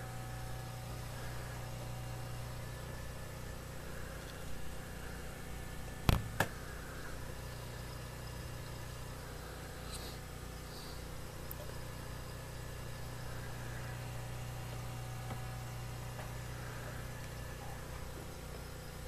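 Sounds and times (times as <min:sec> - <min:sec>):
low electrical hum: 0:00.0 - 0:19.0
sharp knocks: 0:06.1 - 0:06.5.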